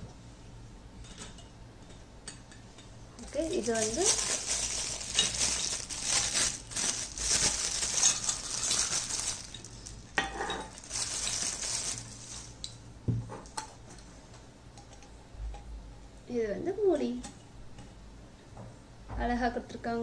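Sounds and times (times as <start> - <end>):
plastic wrapping crinkling: 3.2 - 12.8.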